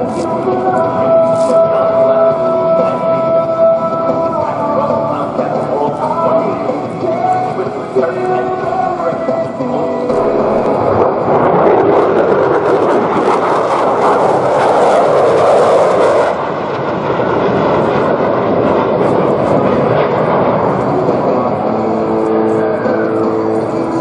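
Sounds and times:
jet flying past low: 9.9 - 24.0.

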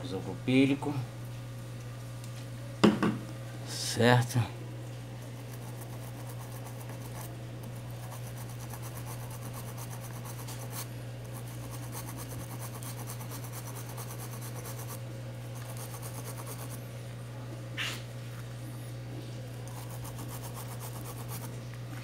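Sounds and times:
small brush scrubbing: 5.4 - 16.8, 19.6 - 22.0.

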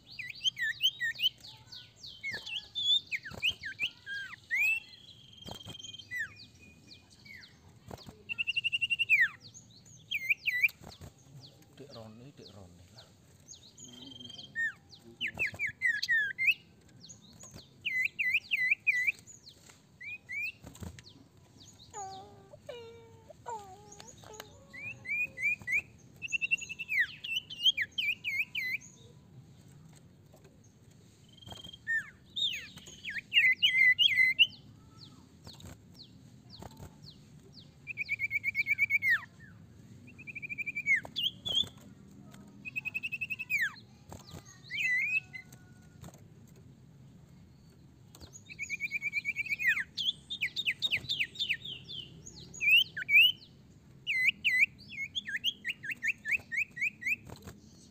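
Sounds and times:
bird chattering trills: 0.0 - 11.1, 21.6 - 29.0, 31.3 - 35.8, 42.6 - 45.7, 48.4 - 53.5.

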